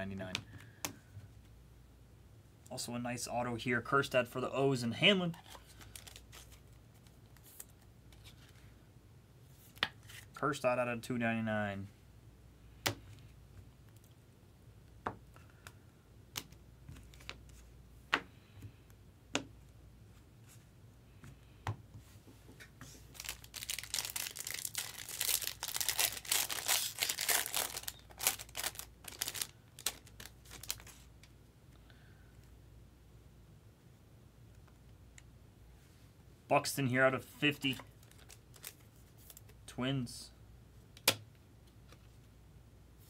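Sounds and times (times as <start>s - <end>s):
foil pack crinkling and tearing: 5.4s - 6.6s, 23.1s - 31.0s.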